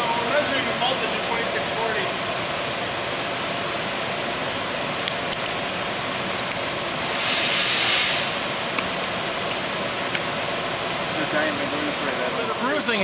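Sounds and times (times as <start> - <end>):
steady background hiss: 0.0 - 13.0
brief loud hiss: 7.1 - 8.4.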